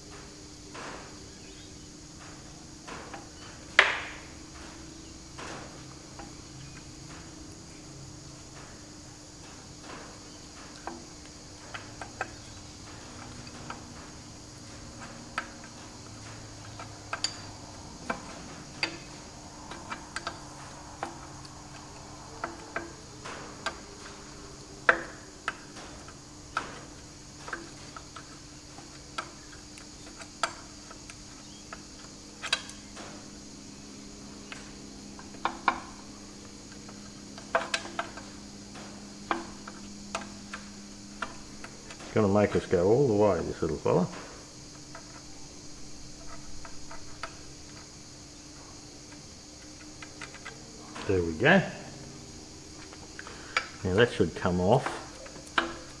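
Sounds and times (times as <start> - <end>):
faint steady hum: 0.0 - 56.0.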